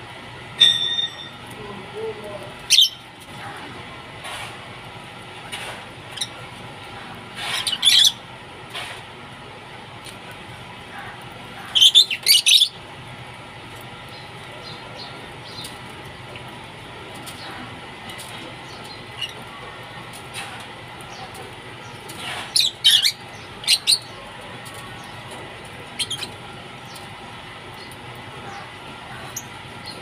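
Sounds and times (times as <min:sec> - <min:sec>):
lovebirds squawking: 0:02.6 - 0:03.1, 0:07.4 - 0:08.3, 0:10.9 - 0:12.8, 0:21.1 - 0:25.2.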